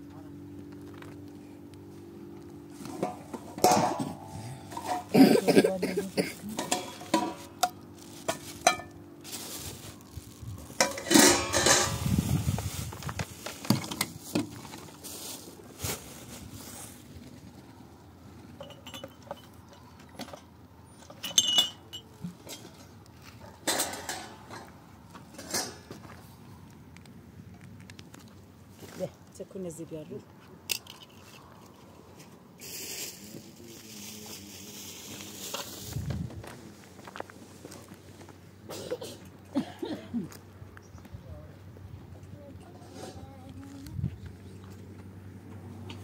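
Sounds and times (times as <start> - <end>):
dishes clinking and clattering: 3.0 - 5.6, 6.6 - 7.7, 10.8 - 12.0, 18.6 - 22.8, 23.6 - 24.7
ringing clink: 21.2 - 22.1.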